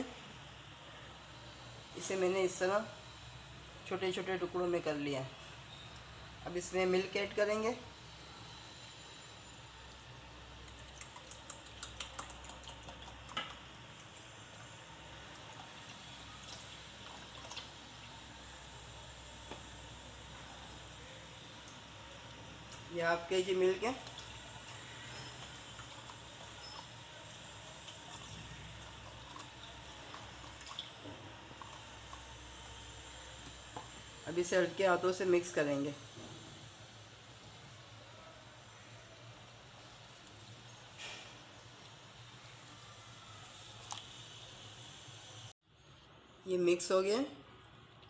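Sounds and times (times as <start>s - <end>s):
milk trickling into a bowl: 9.4s - 20.2s, 21.6s - 33.6s
small liquid ticks: 9.9s - 14.8s, 15.4s - 17.9s, 24.0s - 32.4s
milk pouring into plastic bowl: 10.0s - 18.1s.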